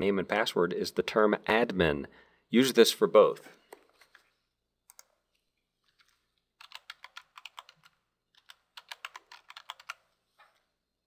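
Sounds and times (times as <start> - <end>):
keyboard typing: 4.8 - 5.2, 5.8 - 10.2.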